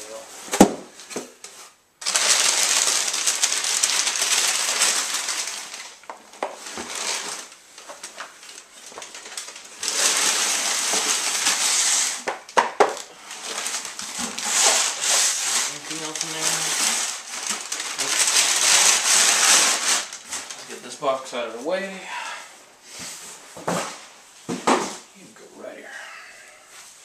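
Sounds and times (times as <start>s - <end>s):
packing paper rustling and crumpling: 0.0s - 21.6s.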